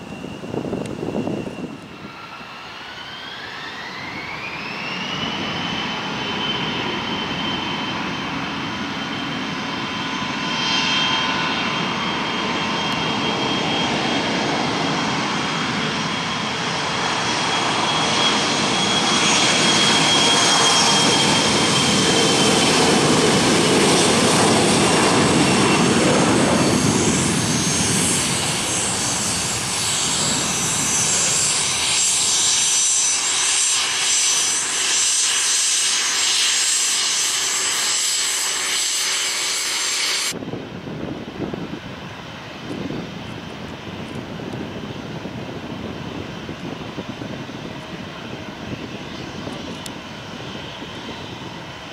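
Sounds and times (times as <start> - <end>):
jet engine whine and rush: 0.0 - 51.9.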